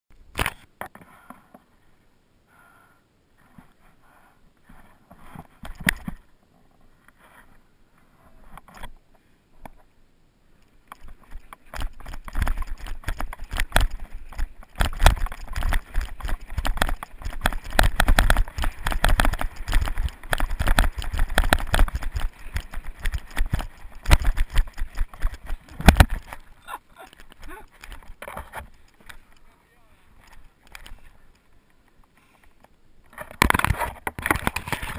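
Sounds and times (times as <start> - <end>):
bike rattling and knocking: 11.0 - 26.5
wind rumbling on microphone: 11.0 - 29.2.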